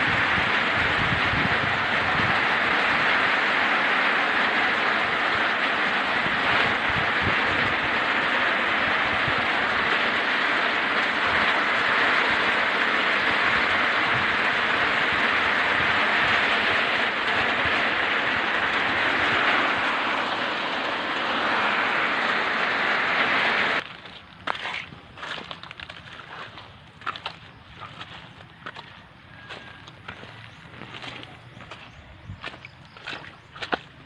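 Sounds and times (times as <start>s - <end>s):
heavy rain: 0.0s - 23.8s
roaring wind: 0.0s - 34.0s.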